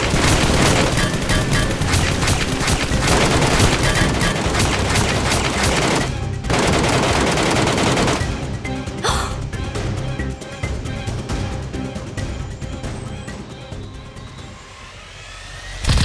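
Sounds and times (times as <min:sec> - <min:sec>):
machine-gun gunfire: 0:00.0 - 0:08.4
action background music: 0:00.0 - 0:16.0.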